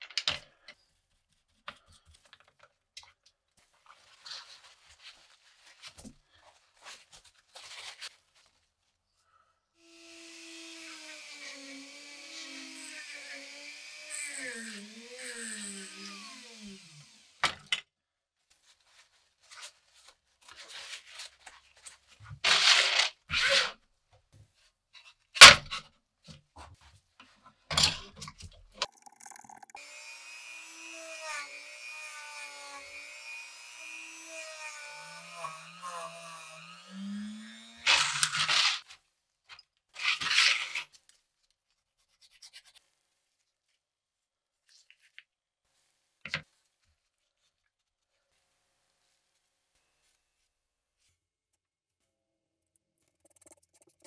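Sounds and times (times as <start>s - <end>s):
small power tool running: 9.8s - 17.4s, 28.9s - 38.8s.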